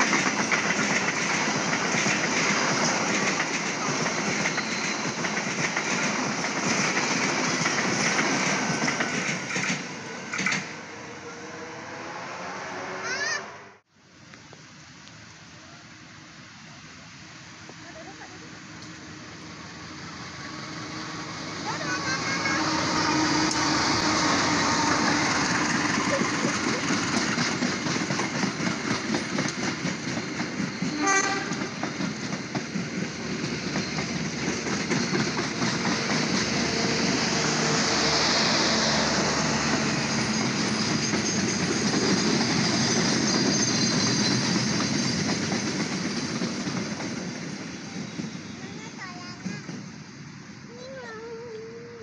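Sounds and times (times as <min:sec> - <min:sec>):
train wheels clickety-clack: 0:00.0 - 0:10.8, 0:21.0 - 0:51.1
locomotive passing: 0:00.0 - 0:13.8, 0:15.4 - 0:52.0.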